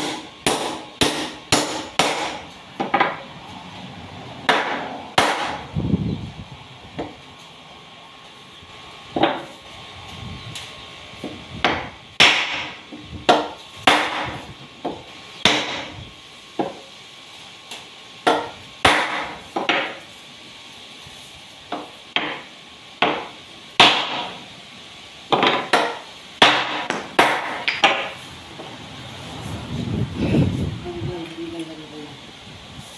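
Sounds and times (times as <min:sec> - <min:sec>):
hammer striking chisel into wood: 0:00.0 - 0:03.2, 0:04.5 - 0:05.6, 0:11.6 - 0:15.9, 0:18.2 - 0:20.0, 0:21.7 - 0:22.4, 0:23.0 - 0:24.3, 0:25.3 - 0:28.1.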